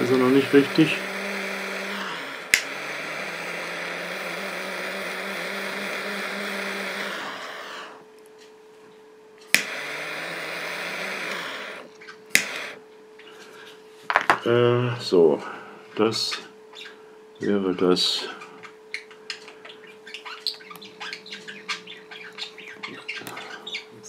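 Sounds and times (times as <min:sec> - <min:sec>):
gas torch hissing: 0:00.0 - 0:08.1, 0:09.5 - 0:12.8
torch igniter click: 0:02.3 - 0:07.9, 0:09.5 - 0:12.8.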